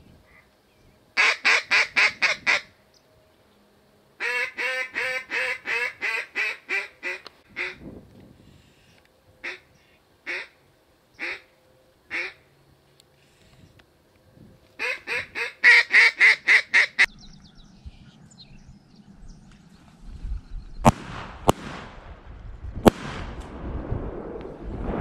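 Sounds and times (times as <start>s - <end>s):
duck call quacks: 1.2s - 2.7s, 4.2s - 7.8s, 10.3s - 10.6s, 12.1s - 12.4s, 14.8s - 17.1s
shotgun blasts: 20.8s - 22.2s, 22.8s - 23.6s.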